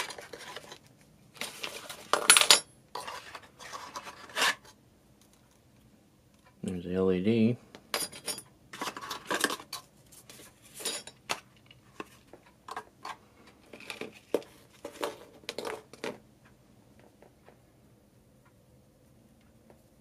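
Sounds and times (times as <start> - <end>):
screws and metal pieces clinking: 1.9 - 3.1, 7.9 - 9.9, 10.7 - 11.3.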